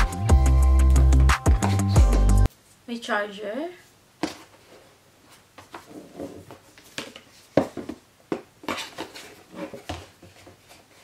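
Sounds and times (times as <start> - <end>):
cardboard and paper rustling: 8.6 - 11.0.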